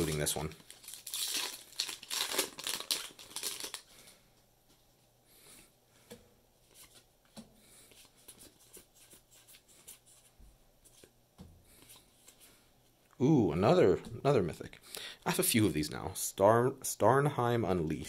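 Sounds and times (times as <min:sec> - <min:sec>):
foil wrapper crinkling and tearing: 0:00.0 - 0:03.9.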